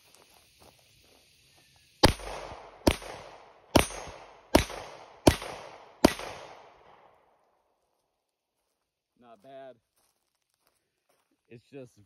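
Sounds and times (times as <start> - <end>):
pistol shots: 2.0 - 7.1.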